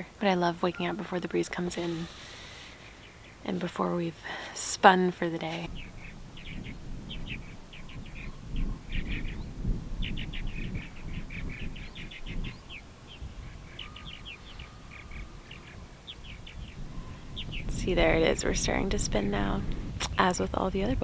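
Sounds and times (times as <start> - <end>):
small birds chirping: 0.0 - 21.0.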